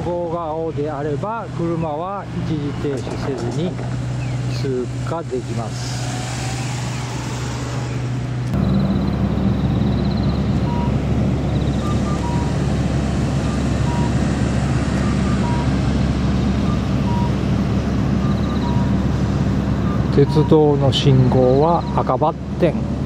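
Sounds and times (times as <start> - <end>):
vehicle engines humming: 0.0 - 23.0
high chirps: 8.6 - 12.6, 18.2 - 19.0
faint short beeps: 11.8 - 12.5, 18.2 - 18.9.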